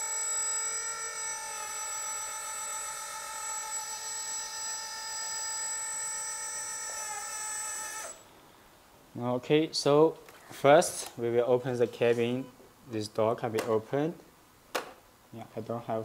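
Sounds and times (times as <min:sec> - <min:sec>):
hydraulic pump whining: 0:00.0 - 0:08.2.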